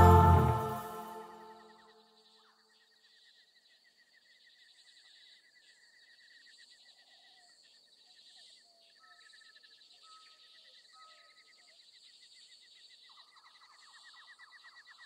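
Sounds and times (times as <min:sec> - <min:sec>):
short whistled notes: 0:00.0 - 0:01.6.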